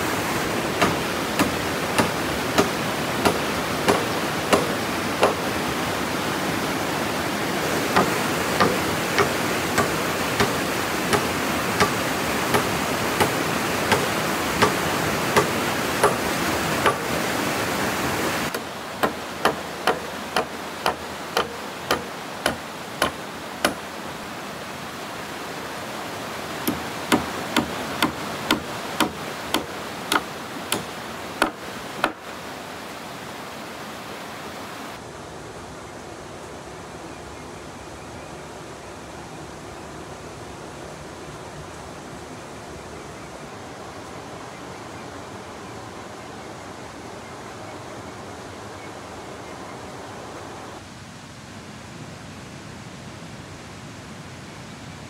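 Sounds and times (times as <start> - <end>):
steady rushing noise: 0.0 - 37.8
hand tool striking wood: 0.8 - 5.5, 7.9 - 17.1, 18.5 - 23.8, 26.6 - 32.3.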